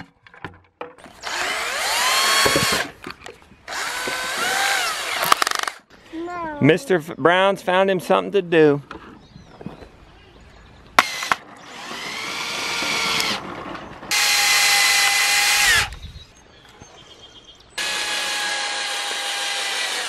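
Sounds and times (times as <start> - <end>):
drill clicks: 1.0 - 3.0, 3.7 - 5.8, 11.0 - 13.4, 14.1 - 16.0
cordless drill motor whine: 1.2 - 2.8, 3.7 - 5.7, 11.0 - 13.4, 14.1 - 16.0, 17.8 - 20.0.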